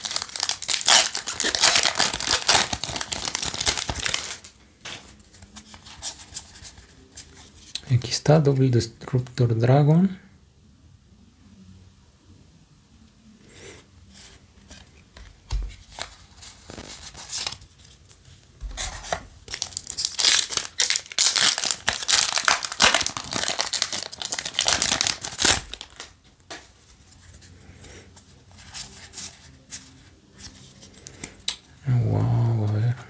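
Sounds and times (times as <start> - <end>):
foil wrapper tearing and crinkling: 0.0 - 4.5, 19.4 - 26.2
cards rustling: 0.0 - 8.1, 14.6 - 27.5.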